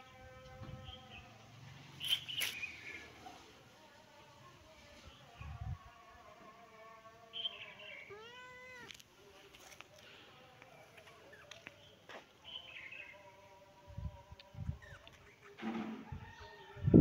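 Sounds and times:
kitten meowing: 0:08.1 - 0:09.0.

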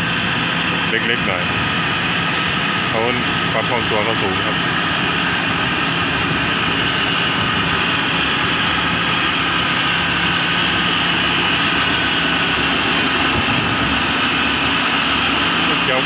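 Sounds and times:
combine harvester engine droning: 0:00.0 - 0:16.0.

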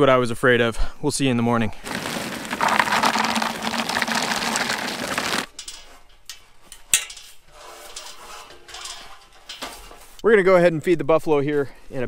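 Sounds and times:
dry feed pouring into bucket: 0:01.8 - 0:05.5.

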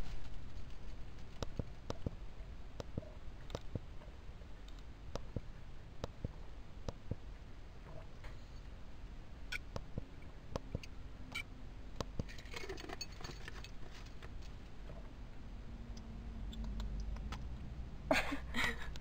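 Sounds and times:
small clicks and taps: 0:01.3 - 0:02.2, 0:02.8 - 0:03.8, 0:15.9 - 0:17.5.

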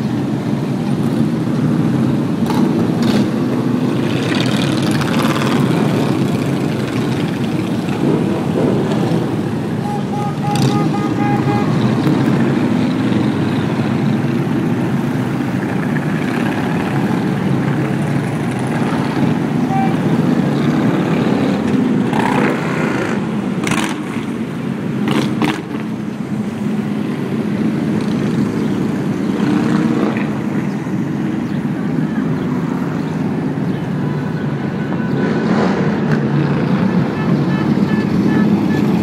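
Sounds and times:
motorcycles riding past: 0:01.0 - 0:24.4.

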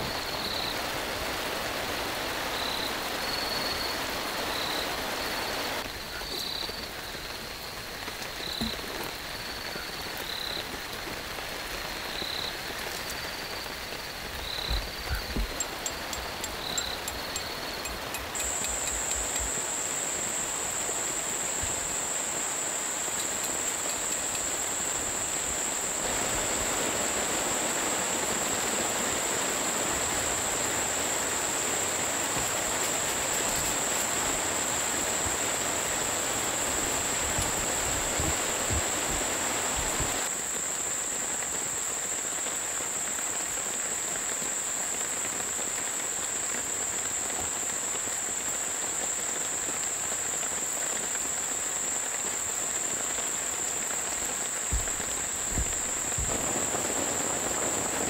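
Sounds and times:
rain hiss: 0:00.0 - 0:58.0
high-pitched insect drone: 0:11.8 - 0:38.9.

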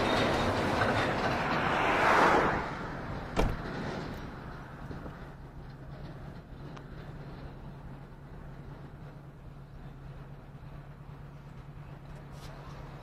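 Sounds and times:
vehicle passing: 0:00.0 - 0:05.4.

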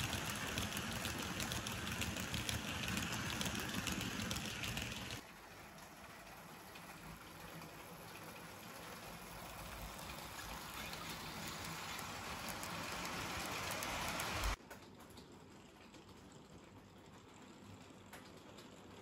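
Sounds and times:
model train running on track: 0:00.0 - 0:05.5, 0:06.2 - 0:14.6.

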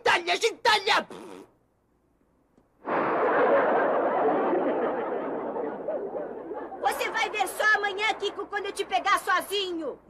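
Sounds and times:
audience laughter: 0:02.8 - 0:07.1.

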